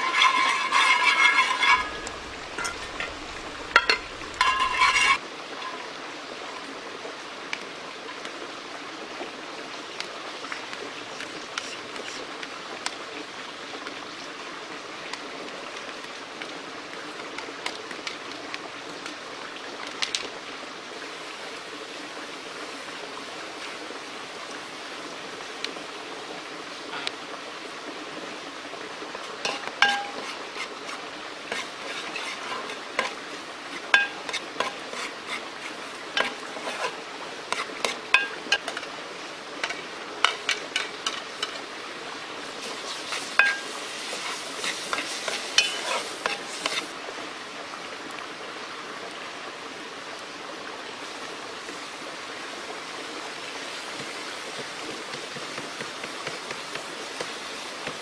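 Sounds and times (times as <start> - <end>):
ladle clinking on pot: 0.0 - 5.2, 29.4 - 30.4, 33.9 - 34.8, 38.2 - 38.8, 43.4 - 43.7, 45.6 - 46.4
metal ladle scraping a pot: 0.0 - 5.2, 29.3 - 38.9, 42.7 - 46.9
food sizzling in a pot: 0.0 - 5.8, 29.2 - 38.9, 39.6 - 41.7, 42.5 - 47.0, 53.5 - 58.0.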